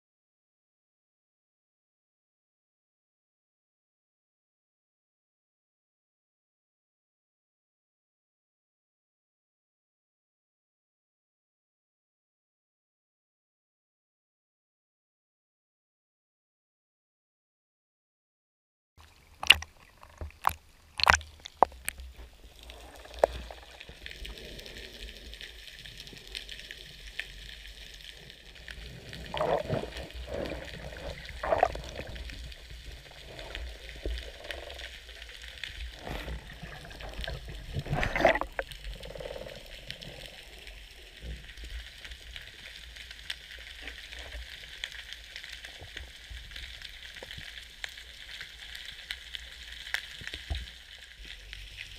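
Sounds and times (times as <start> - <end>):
gurgling water: 19.0 - 51.9
steady underwater hiss: 19.1 - 51.9.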